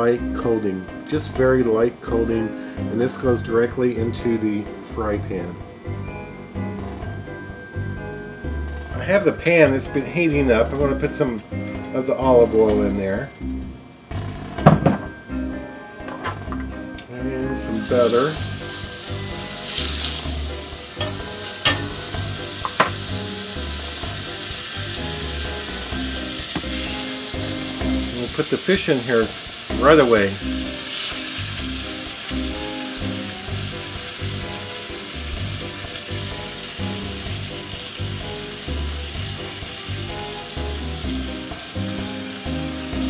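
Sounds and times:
butter sizzling in a pan: 17.7 - 43.0
metal utensil clicking on pan: 21.0 - 22.0.

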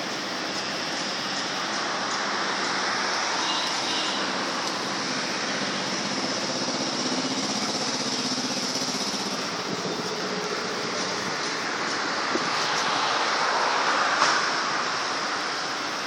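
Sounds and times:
small engine running: 3.2 - 13.1.

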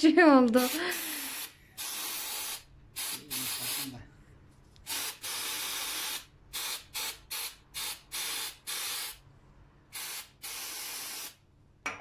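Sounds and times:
aerosol spray hissing: 0.6 - 4.0, 4.9 - 9.2, 9.9 - 11.4.

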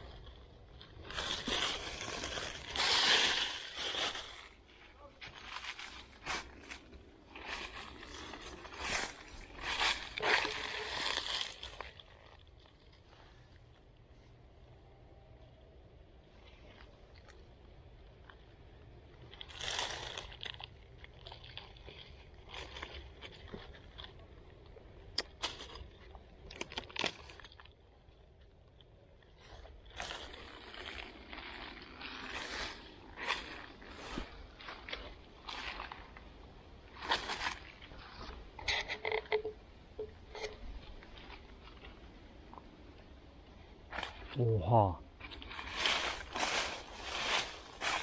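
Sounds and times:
footsteps crunching through dry leaves: 0.0 - 12.4, 19.4 - 20.6, 29.4 - 38.4, 45.2 - 48.0.

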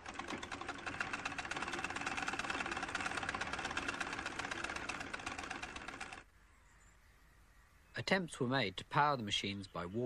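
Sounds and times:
sewing machine clattering: 0.0 - 6.2.

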